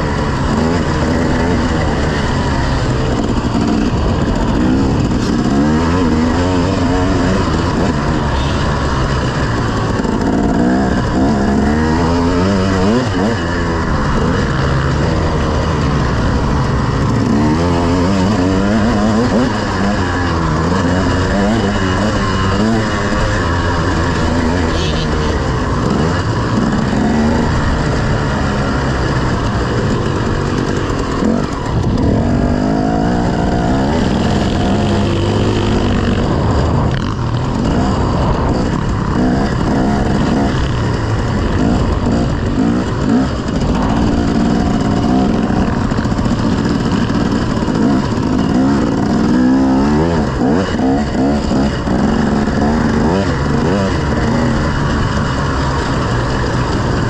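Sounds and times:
motocross bike engines revving: 0:00.0 - 0:57.0.

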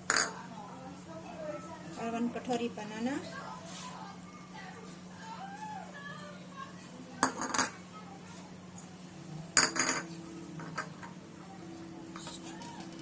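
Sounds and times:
steady low hum: 0:00.0 - 0:13.0
dishware clinking: 0:09.6 - 0:11.2.

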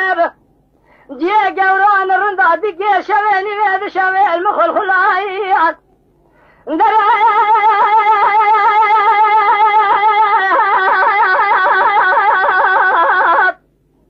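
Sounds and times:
person singing long note with vibrato: 0:06.7 - 0:13.6.

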